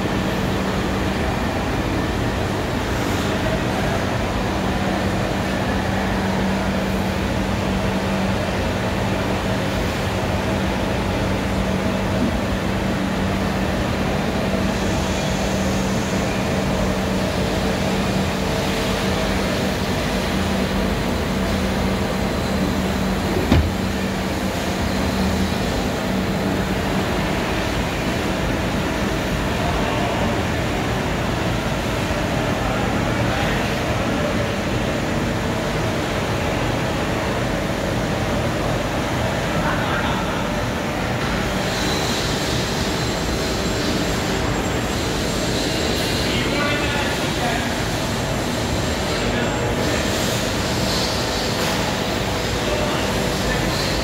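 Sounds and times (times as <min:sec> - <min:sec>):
machinery hum: 0:00.0 - 0:54.0
sharp knock: 0:23.4 - 0:24.0.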